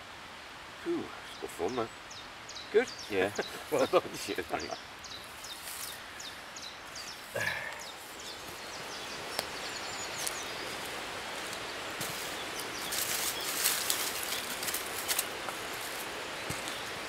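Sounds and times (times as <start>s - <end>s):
steady hiss: 0.0s - 17.0s
crackles and rustles: 5.2s - 6.0s, 6.9s - 17.0s.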